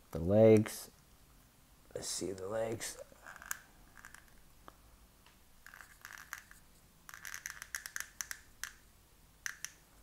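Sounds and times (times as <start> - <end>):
plastic toy joints clicking: 5.7 - 6.5, 7.1 - 8.8.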